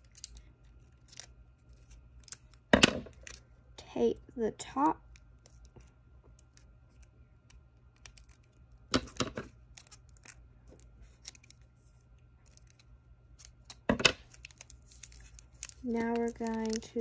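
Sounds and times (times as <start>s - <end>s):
tape and paper crinkling: 0.0s - 3.5s, 5.0s - 17.0s
scissors snipping paper: 13.4s - 17.0s.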